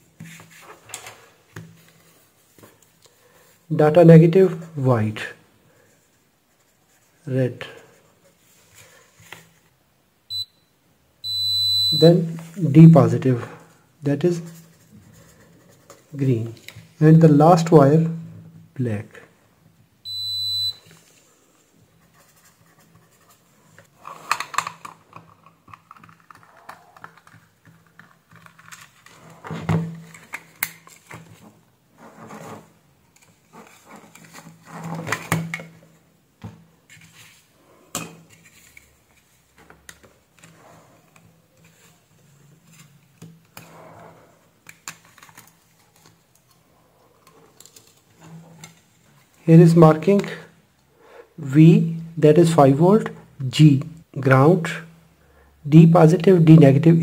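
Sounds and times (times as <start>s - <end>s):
multimeter beep: 10.3s - 12.2s, 20.1s - 20.8s
plastic clicks and rattles: 24.2s - 29.2s.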